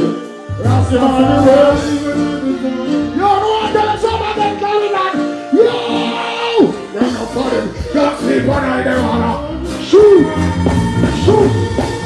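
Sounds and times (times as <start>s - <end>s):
live reggae band playing: 0.0s - 12.0s
man singing long notes: 0.0s - 12.0s.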